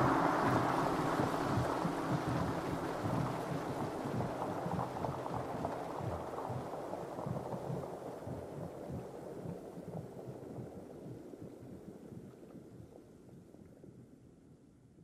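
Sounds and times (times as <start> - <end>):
low rumbling wash of noise: 0.0 - 13.5.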